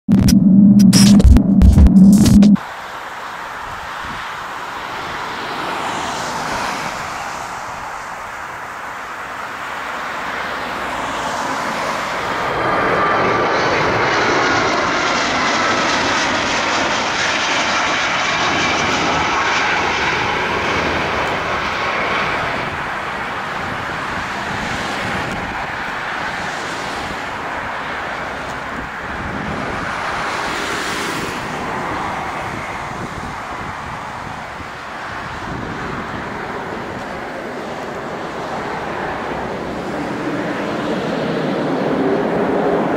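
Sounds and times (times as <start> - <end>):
jet engine rumble and whine: 0.1 - 42.9.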